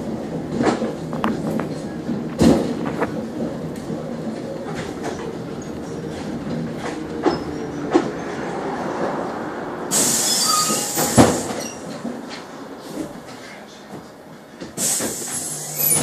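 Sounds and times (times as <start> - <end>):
trolleybus rumbling and rattling: 0.0 - 16.0
compressed air hissing: 9.9 - 11.6, 14.8 - 16.0.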